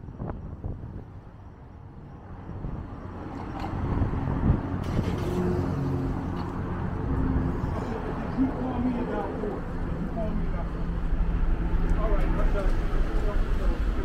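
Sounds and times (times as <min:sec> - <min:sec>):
vehicle engine passing by: 0:03.4 - 0:14.0.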